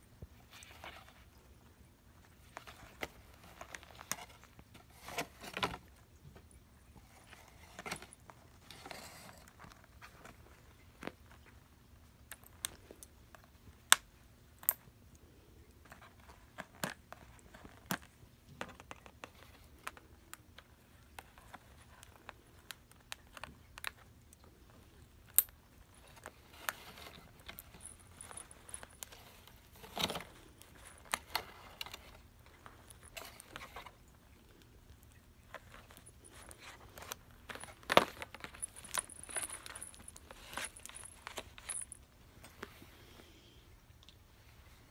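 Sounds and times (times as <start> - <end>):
cardboard and plastic rustling: 2.2 - 11.7, 25.7 - 42.8
packaging clatter: 35.5 - 41.9.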